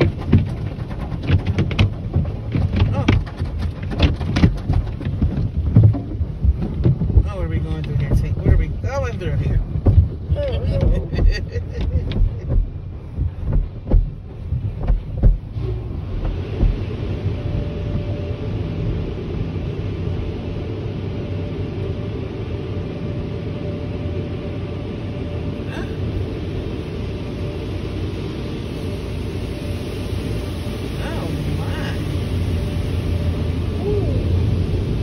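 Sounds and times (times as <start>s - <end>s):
water jets rushing on car: 0.0s - 35.0s.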